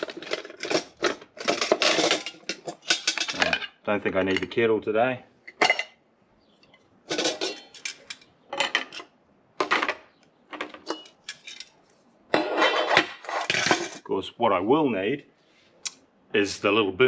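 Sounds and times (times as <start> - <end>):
metal pots and pans clattering: 0.0 - 4.6, 5.5 - 6.0, 7.1 - 11.7, 12.3 - 14.0.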